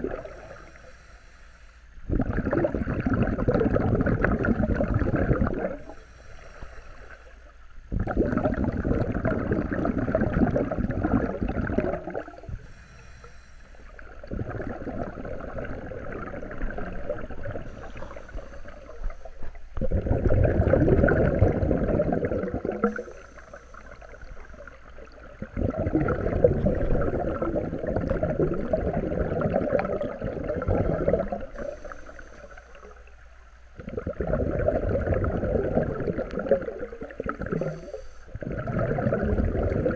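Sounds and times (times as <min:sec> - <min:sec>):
underwater regulator bubbles: 0:00.0 - 0:00.9, 0:02.0 - 0:13.1, 0:13.9 - 0:39.9.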